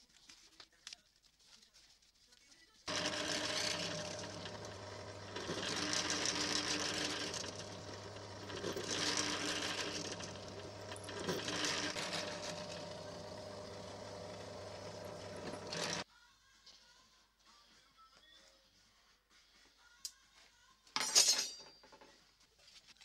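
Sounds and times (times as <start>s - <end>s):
drill bit cutting through steel: 2.9s - 16.0s
drill press motor hum: 2.9s - 16.0s.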